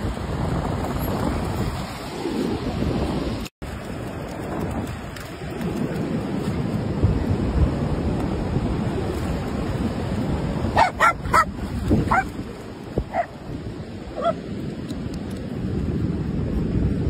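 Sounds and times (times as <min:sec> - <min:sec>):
wind: 0:00.0 - 0:17.0
dog barking: 0:10.8 - 0:11.5, 0:12.1 - 0:12.3, 0:13.1 - 0:13.3, 0:14.2 - 0:14.4.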